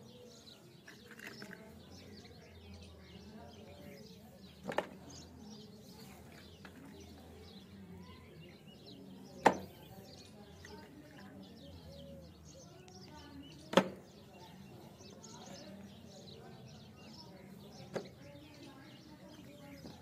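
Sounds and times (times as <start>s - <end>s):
birds chirping faintly: 0.0s - 20.0s
plastic toys knocking: 4.6s - 5.0s.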